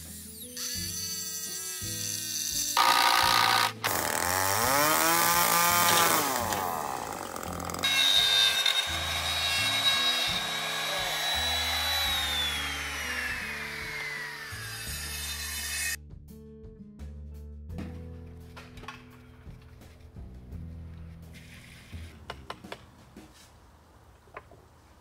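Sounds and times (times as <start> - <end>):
background music: 0.0 - 23.2
drill boring into wood: 0.2 - 16.0
router high whine: 2.8 - 4.8, 5.7 - 16.0.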